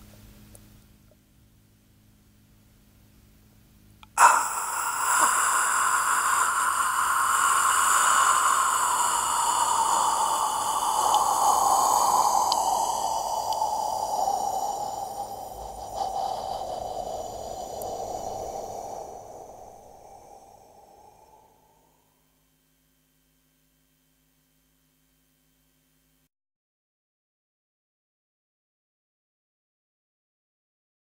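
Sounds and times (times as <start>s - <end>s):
long amplified breath: 4.1s - 22.6s.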